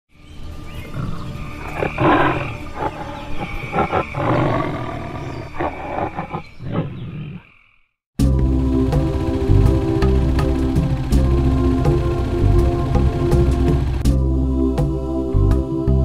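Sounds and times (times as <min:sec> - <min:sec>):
music: 0:00.1 - 0:03.4, 0:08.2 - 0:16.0
tiger roaring and growling: 0:00.8 - 0:07.5.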